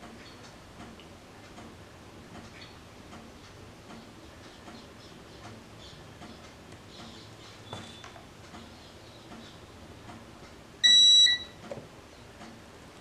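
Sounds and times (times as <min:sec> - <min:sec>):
faint regular ticking: 0:00.0 - 0:10.6
gas detector beeping: 0:10.8 - 0:11.6.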